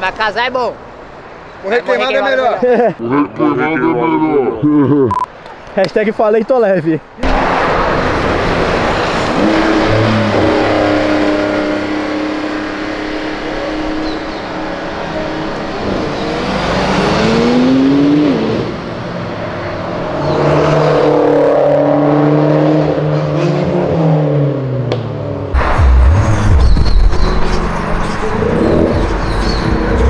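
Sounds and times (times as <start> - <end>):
car engine pulling away: 7.2 - 30.0
sports car accelerating: 7.2 - 30.0.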